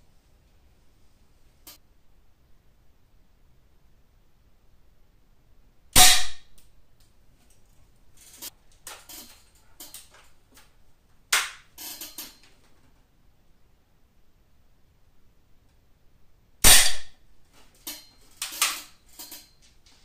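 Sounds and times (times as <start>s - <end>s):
handling clicks and knocks: 8.2s - 12.9s, 17.6s - 20.0s.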